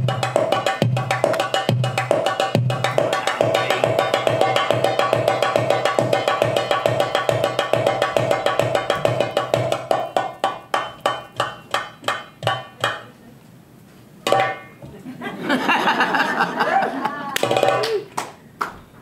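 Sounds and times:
hand drum: 0.0 - 13.1, 14.3 - 14.8, 17.4 - 18.1
frame drum: 0.0 - 13.2, 14.3 - 14.9, 17.4 - 18.0.

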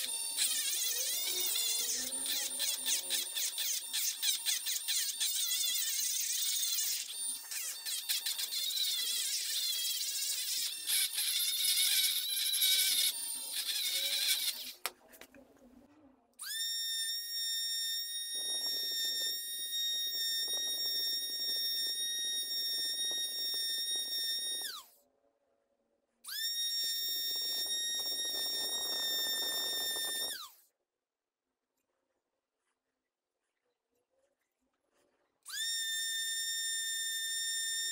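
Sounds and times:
rotary tool grinding whine: 0.0 - 14.9, 16.4 - 25.0, 26.3 - 30.6, 35.5 - 37.9.

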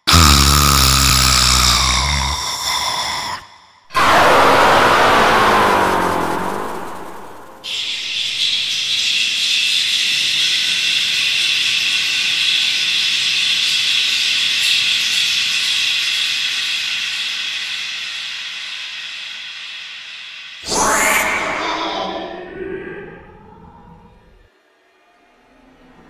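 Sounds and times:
high-pitched hiss with ringing tones: 4.0 - 23.6.

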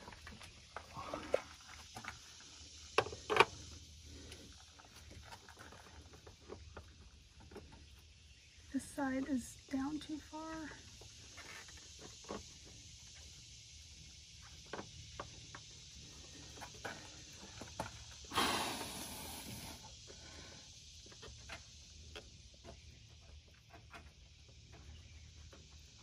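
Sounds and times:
brief rushing hiss: 18.3 - 19.9.

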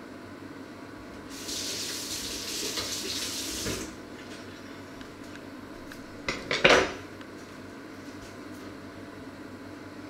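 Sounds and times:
tap running water: 1.2 - 4.6.

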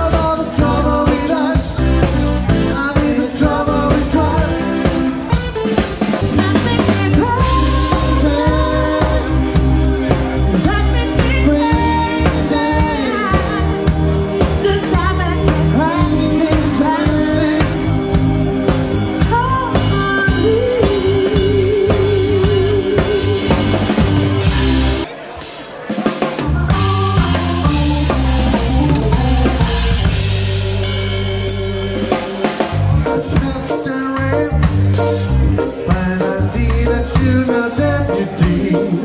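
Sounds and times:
bass drum beat: 0.0 - 25.1, 26.4 - 39.0
keyboard: 0.0 - 39.0
woman singing: 6.3 - 18.2, 19.2 - 23.9, 26.4 - 29.8.

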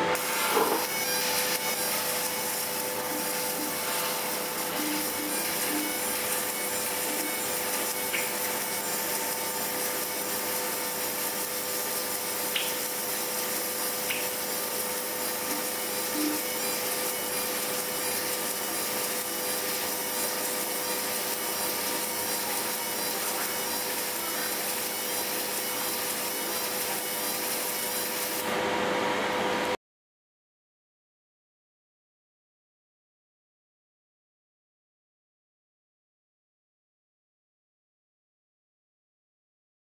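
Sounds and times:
laser engraving rasping hiss: 0.0 - 28.6
constant machine hum: 0.0 - 29.8.

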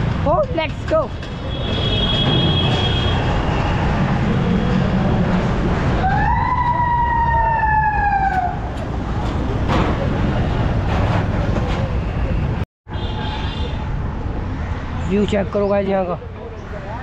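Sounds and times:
wind and road noise: 0.0 - 17.0
vehicle horn blast: 1.6 - 3.3.

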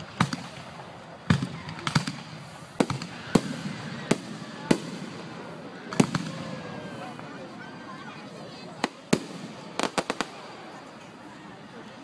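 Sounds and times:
fireworks bangs with echo: 0.0 - 7.2, 8.8 - 10.8.

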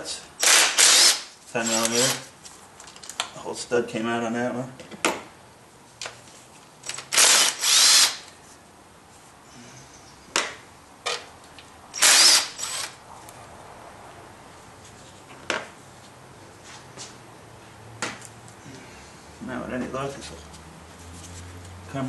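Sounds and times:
cordless drill motor whine: 7.2 - 8.2, 12.0 - 13.0.

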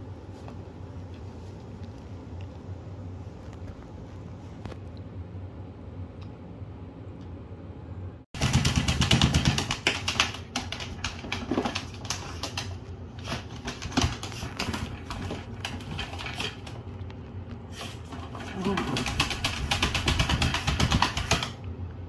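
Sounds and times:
dog claws clicking on plastic: 8.4 - 16.8, 18.1 - 21.6.

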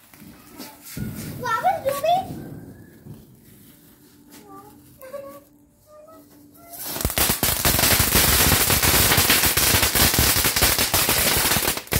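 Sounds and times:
firecracker fuse hiss: 6.6 - 11.9
firecracker pops and cracks: 6.7 - 11.9.

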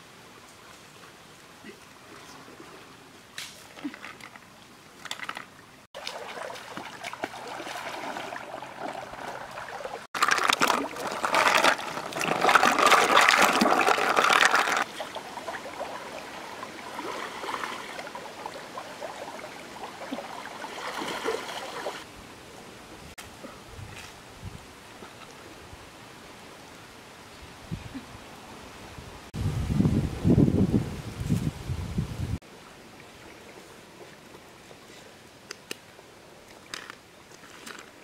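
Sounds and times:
rippling water: 0.0 - 22.1
river water splashing: 0.1 - 22.1.

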